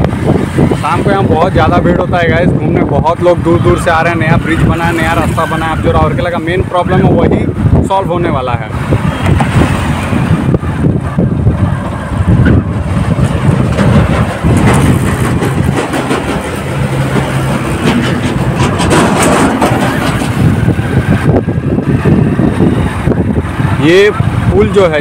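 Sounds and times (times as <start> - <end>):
road and wind noise: 0.0 - 25.0
vehicle engine drone: 0.0 - 25.0.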